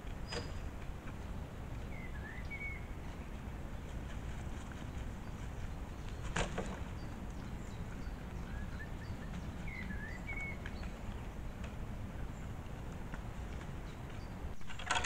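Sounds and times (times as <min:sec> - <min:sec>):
deer browsing leaves: 0:00.0 - 0:08.2
small birds chirping: 0:00.0 - 0:15.0.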